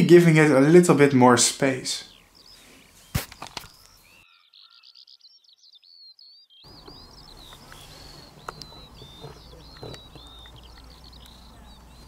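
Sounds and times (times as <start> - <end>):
songbirds chirping: 0.0 - 12.0
sharp click: 3.1 - 3.9.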